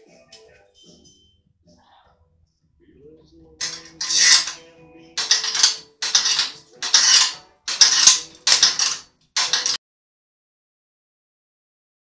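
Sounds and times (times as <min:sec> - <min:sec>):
metallic clattering: 0:03.6 - 0:04.6, 0:05.2 - 0:09.8.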